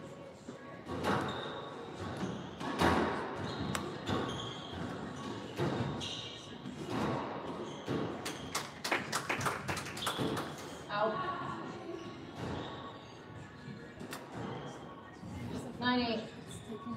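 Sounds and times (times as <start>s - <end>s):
squash ball hitting racquets and walls: 0.9s - 8.8s
shoes squeaking on hardwood floor: 1.0s - 8.5s, 11.9s - 13.2s.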